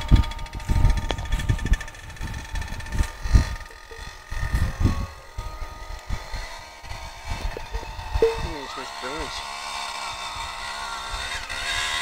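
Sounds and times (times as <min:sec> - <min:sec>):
wind buffeting microphone: 0:00.0 - 0:08.8
distant dirt bike engine: 0:00.0 - 0:12.0.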